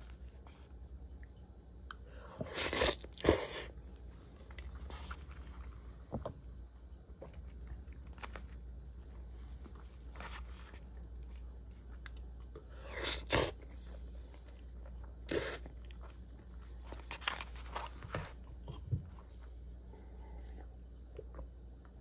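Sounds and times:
chewing food: 6.8 - 16.8.

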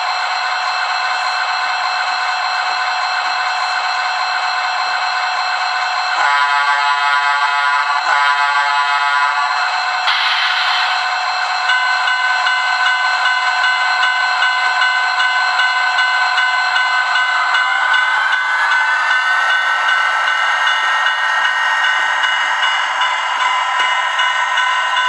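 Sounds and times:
model train diesel engine sound: 0.0 - 25.0.

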